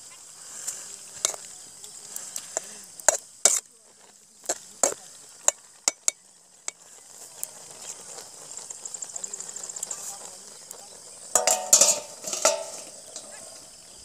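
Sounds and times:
faint sizzle: 0.0s - 14.0s
metal ladle scraping a pan: 0.6s - 1.5s, 2.2s - 3.7s, 11.3s - 13.6s.

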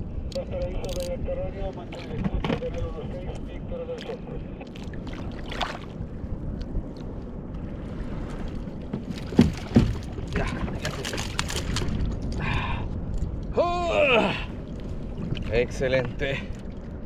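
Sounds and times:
water lapping against kayak: 3.9s - 17.0s
small splashes: 4.7s - 6.0s.

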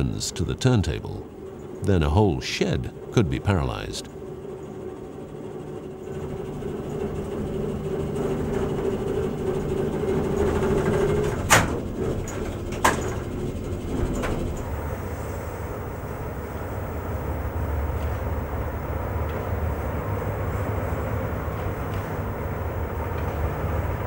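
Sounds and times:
turntable drive hum: 11.8s - 24.0s.

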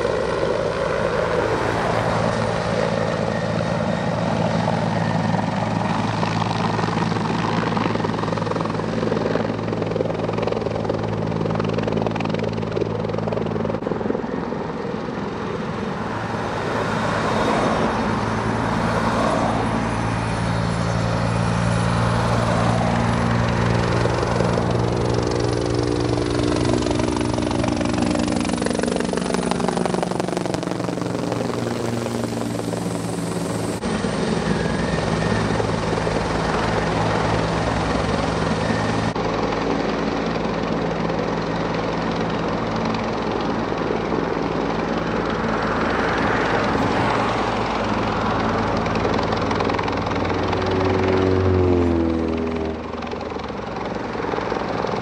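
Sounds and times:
helicopter rotor and turbine: 0.0s - 55.0s.

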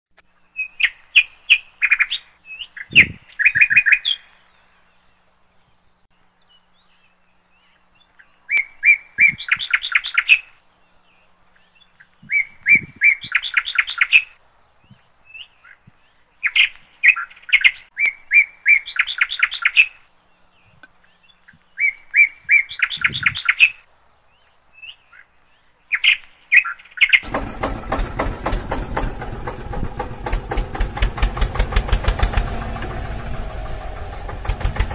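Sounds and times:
songbird singing: 0.1s - 34.9s
engine pulsing: 27.2s - 34.9s.

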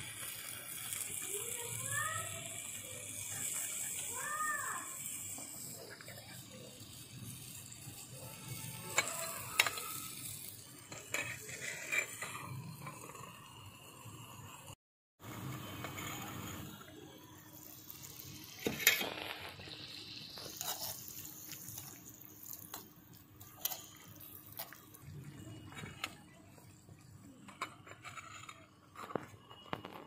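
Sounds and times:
water splashing in a metal pot: 0.0s - 14.8s, 17.4s - 28.0s
utensils clinking: 19.8s - 26.2s.

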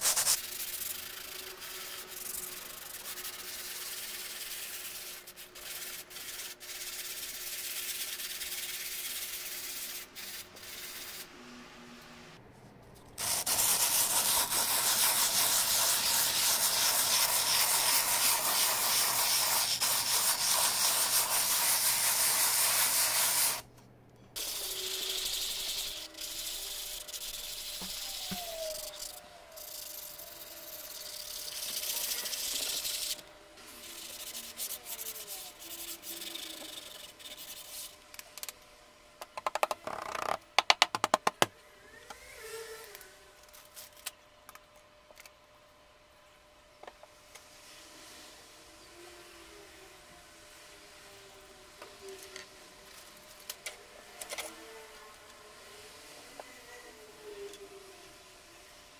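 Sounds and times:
sanding sponge scratching canvas: 0.0s - 11.3s, 13.2s - 23.6s, 24.4s - 38.0s.

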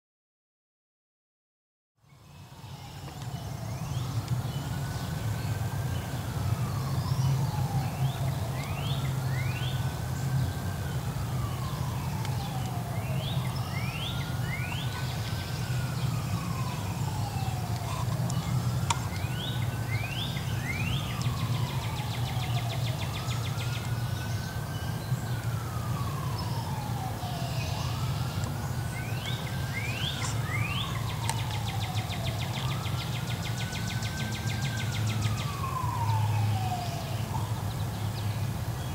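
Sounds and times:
emergency vehicle siren wailing: 2.2s - 38.9s
bird chirps: 11.6s - 25.5s, 27.4s - 36.3s.

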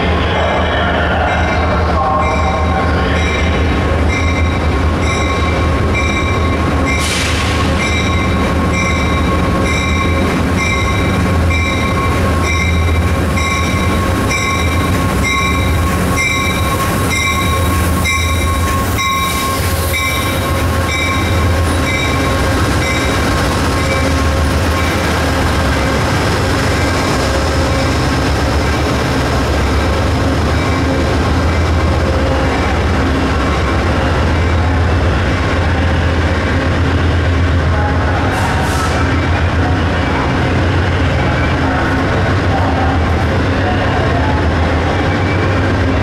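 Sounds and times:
diesel locomotive rumble: 0.0s - 46.0s
train bell ringing: 1.2s - 25.0s.

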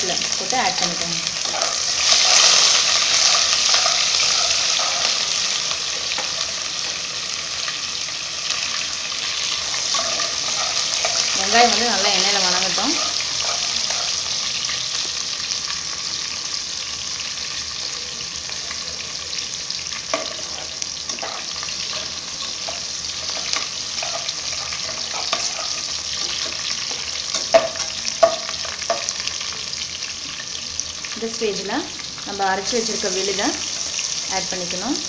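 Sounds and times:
food sizzling in hot oil: 0.0s - 35.0s
utensil scraping pot: 1.4s - 7.1s, 9.3s - 14.6s, 20.1s - 29.1s.

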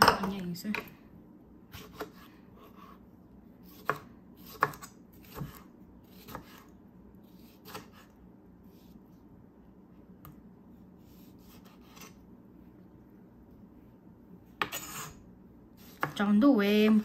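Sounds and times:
knife slicing tomato on board: 1.7s - 3.0s, 3.6s - 9.0s, 11.0s - 12.2s, 14.6s - 15.2s, 15.8s - 16.2s.

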